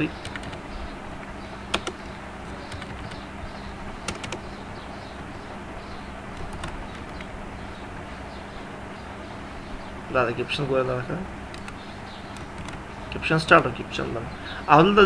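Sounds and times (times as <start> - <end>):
recording hiss and low hum: 0.0 - 15.0
keyboard keystrokes: 0.2 - 0.6, 1.8 - 2.0, 4.1 - 4.5, 6.4 - 7.3, 11.5 - 12.8.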